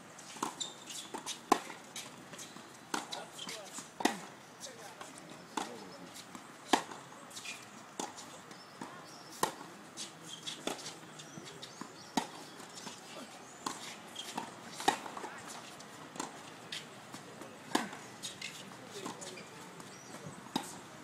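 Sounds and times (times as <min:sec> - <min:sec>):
tennis ball struck with rackets: 0:00.4 - 0:04.3, 0:05.6 - 0:07.0, 0:08.0 - 0:11.0, 0:13.6 - 0:15.3, 0:17.1 - 0:20.8.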